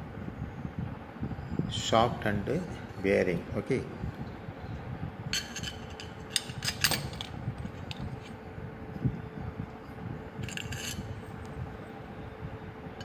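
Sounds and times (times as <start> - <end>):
faint steady hum: 0.0 - 13.0
metal parts clinking and scraping: 5.4 - 8.4, 10.4 - 11.1.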